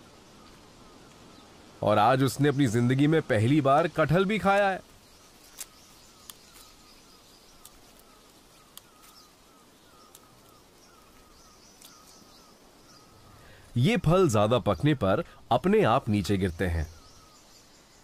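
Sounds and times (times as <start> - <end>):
light clicks: 7.5 - 8.1.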